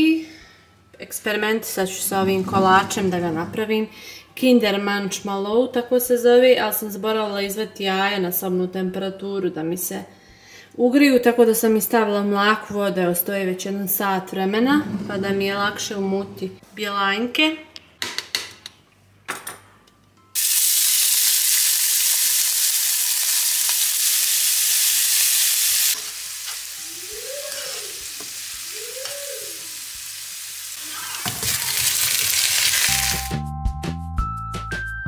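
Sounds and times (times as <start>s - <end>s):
background music: 0.0s - 8.7s, 31.7s - 35.0s
potatoes sizzling in a pan: 20.4s - 33.4s.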